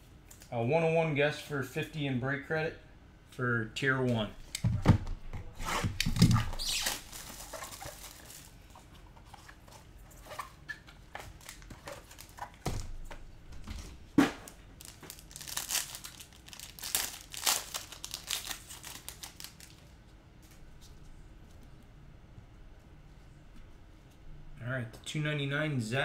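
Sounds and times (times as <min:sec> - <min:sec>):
wrapper crinkling and tearing: 0:06.0 - 0:08.7, 0:11.3 - 0:12.6, 0:14.5 - 0:20.0.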